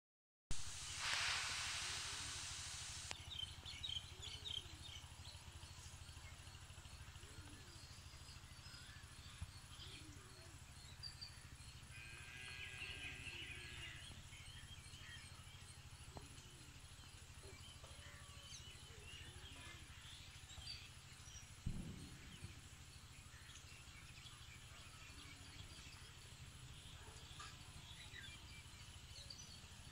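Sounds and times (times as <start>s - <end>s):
burst of hiss: 0.5s - 3.3s.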